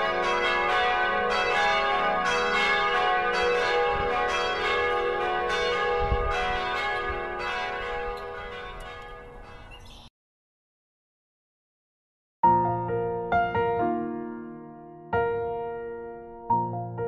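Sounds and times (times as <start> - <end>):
church bells ringing: 0.0 - 9.8.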